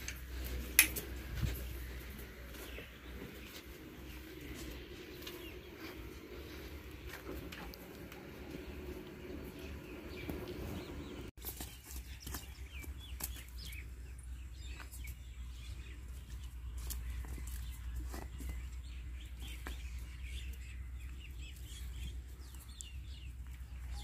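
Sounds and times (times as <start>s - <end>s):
steady low rumble: 0.0s - 11.3s
small birds chirping: 0.0s - 24.0s.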